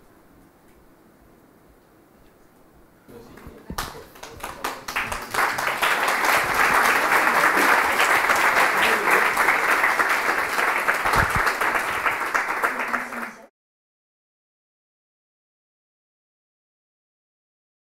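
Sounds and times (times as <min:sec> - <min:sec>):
audience applauding: 0:03.2 - 0:13.5.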